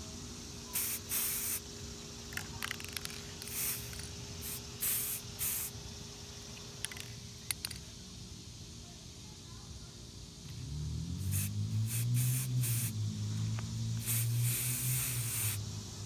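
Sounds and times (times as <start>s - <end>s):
spray can hissing: 0.7s - 1.6s, 2.3s - 5.7s, 11.2s - 15.6s.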